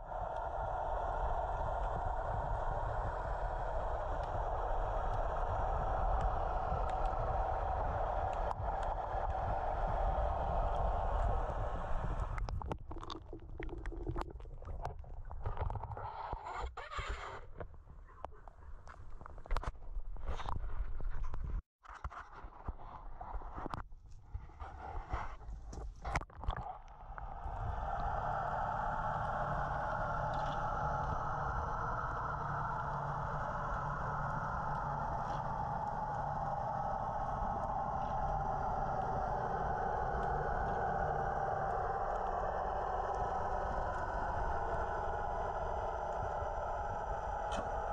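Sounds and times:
hiss: 0:00.0 - 0:12.4, 0:27.4 - 0:47.9
muffled underwater rumble: 0:00.0 - 0:47.9
bubbles clicking and crackling: 0:12.1 - 0:16.3, 0:26.1 - 0:28.0.

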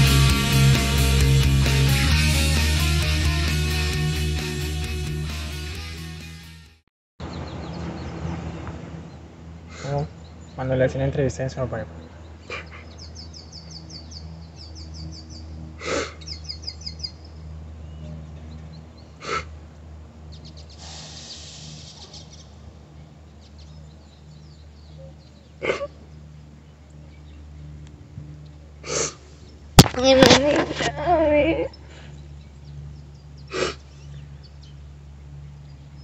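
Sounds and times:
birds chirping: 0:07.2 - 0:36.0
steady low hum: 0:07.3 - 0:20.8, 0:21.4 - 0:36.0.

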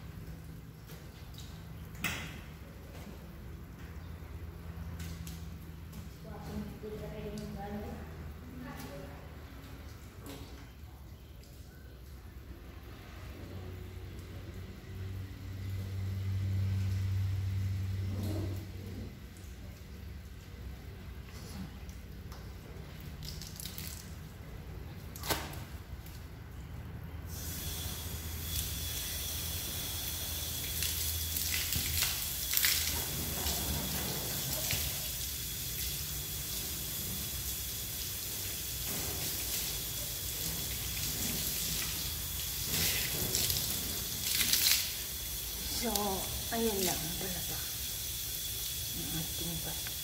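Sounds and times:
hose spraying water on car: 0:27.3 - 0:50.0.

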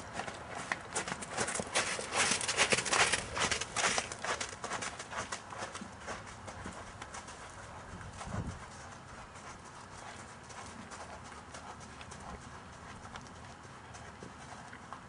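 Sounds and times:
horse hoofbeats on sand: 0:00.0 - 0:15.0.

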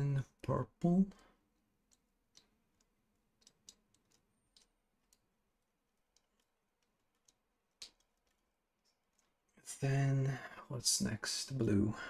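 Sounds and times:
wires and connectors clicking: 0:01.5 - 0:09.6.

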